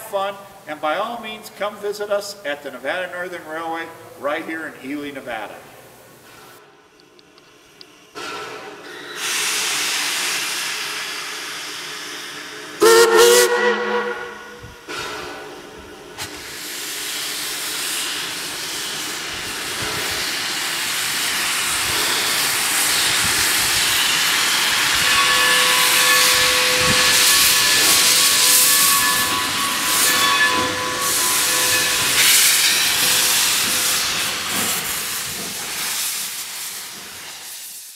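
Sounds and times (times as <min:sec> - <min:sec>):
steam locomotive hissing: 0:07.6 - 0:37.9.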